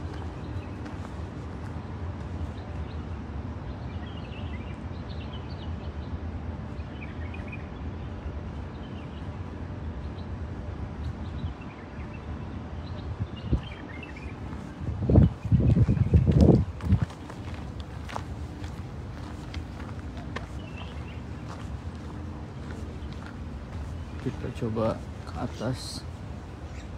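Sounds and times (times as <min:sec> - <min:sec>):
small birds chirping: 0:12.8 - 0:26.9.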